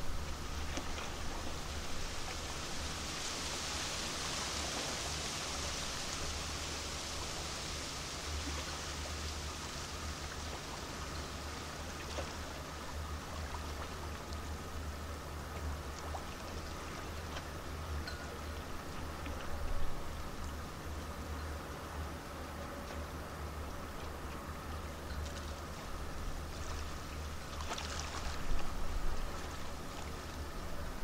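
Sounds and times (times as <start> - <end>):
rushing water hiss: 0.0 - 15.0
low pulsing machinery hum: 0.0 - 31.0.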